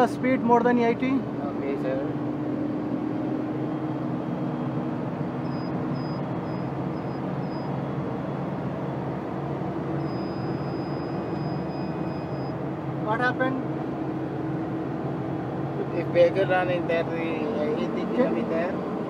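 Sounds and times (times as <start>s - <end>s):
truck engine and road rumble: 0.0s - 19.0s
continuous high warning tone: 3.7s - 8.6s, 9.6s - 13.6s
short high beeps: 5.4s - 7.8s, 10.0s - 12.6s.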